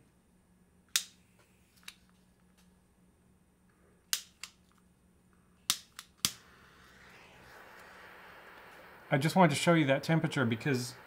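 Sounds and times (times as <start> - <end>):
blow torch igniter clicking: 5.7 - 11.0.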